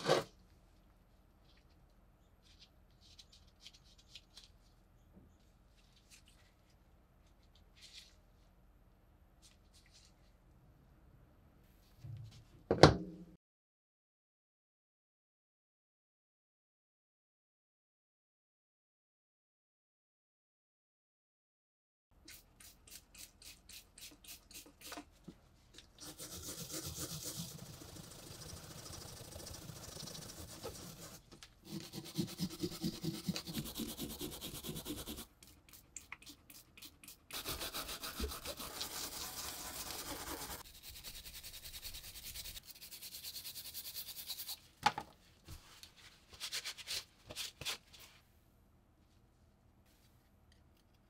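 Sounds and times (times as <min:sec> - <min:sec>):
wire brush scrubbing metal: 0:37.3 - 0:44.5.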